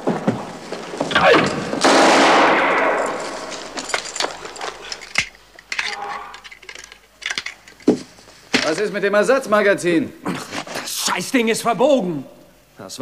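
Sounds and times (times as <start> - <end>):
gunshots: 1.2 - 3.7
loud blast: 1.3 - 3.5.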